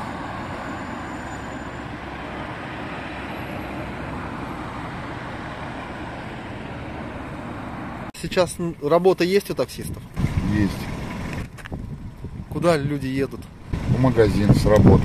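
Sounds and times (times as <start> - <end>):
cars and bus driving by: 0.0 - 15.0.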